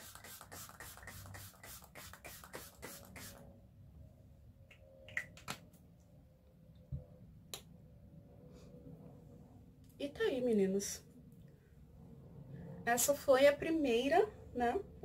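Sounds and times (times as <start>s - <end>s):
spray bottle spritzing: 0.0s - 3.4s.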